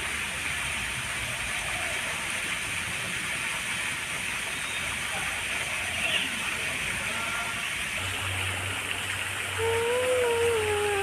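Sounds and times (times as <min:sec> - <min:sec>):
waterfall rushing: 0:04.0 - 0:11.0.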